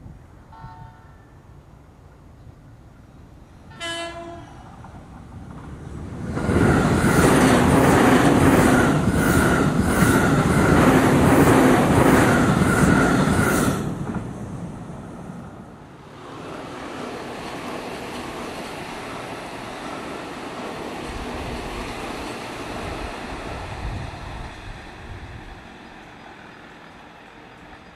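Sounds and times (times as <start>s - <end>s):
electric train passing: 0.3s - 27.9s.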